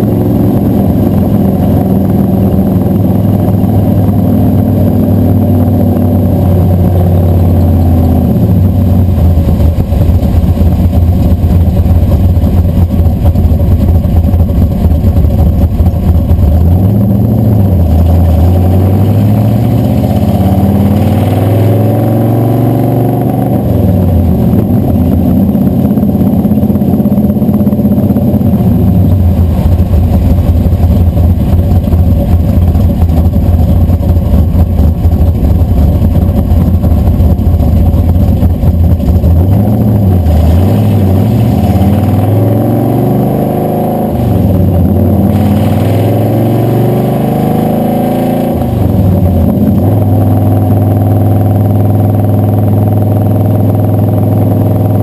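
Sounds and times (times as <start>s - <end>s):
road noise: 0.0s - 55.0s
truck engine running: 0.0s - 55.0s.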